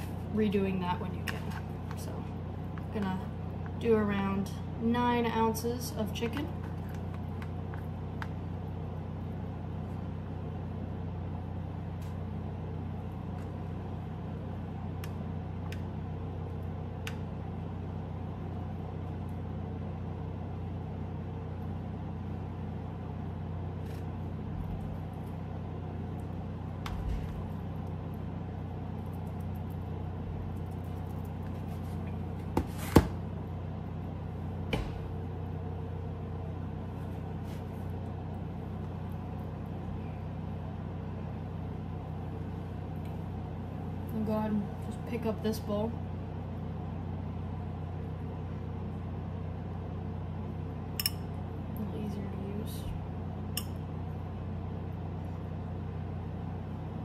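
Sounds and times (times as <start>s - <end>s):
kitchen background hum: 0.0s - 57.0s.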